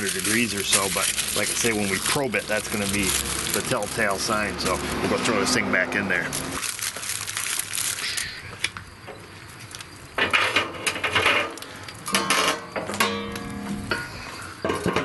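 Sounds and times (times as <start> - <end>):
foil crinkling: 0.0 - 5.6, 6.2 - 8.6.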